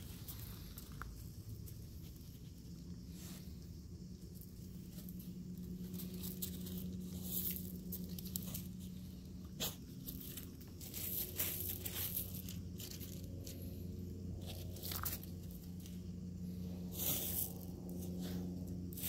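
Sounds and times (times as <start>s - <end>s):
low steady hum: 0.0s - 19.0s
pebbles crunching and rattling: 10.0s - 13.6s.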